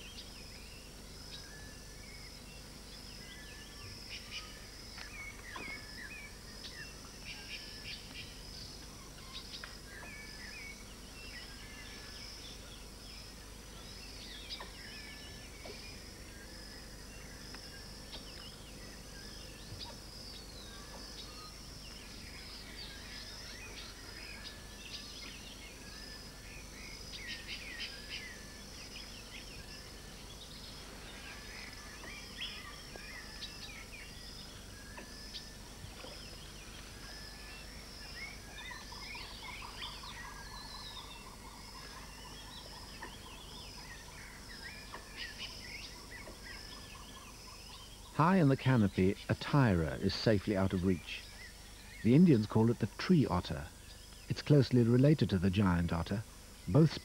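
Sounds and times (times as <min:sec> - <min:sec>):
birds calling and chirping: 0:00.0 - 0:57.0
high hum of insects: 0:00.0 - 0:57.0.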